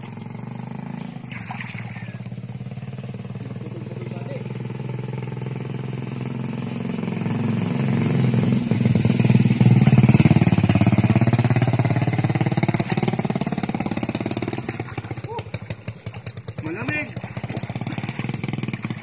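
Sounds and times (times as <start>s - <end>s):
small engine running: 9.4s - 19.0s.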